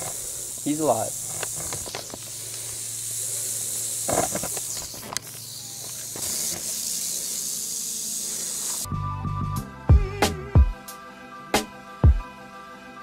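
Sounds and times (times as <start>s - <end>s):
rattlesnake rattling: 0.0s - 8.9s.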